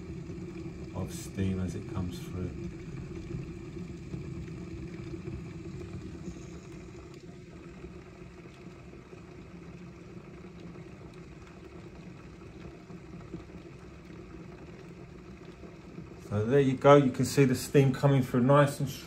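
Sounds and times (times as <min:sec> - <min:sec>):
water boiling hard: 0:00.0 - 0:19.0.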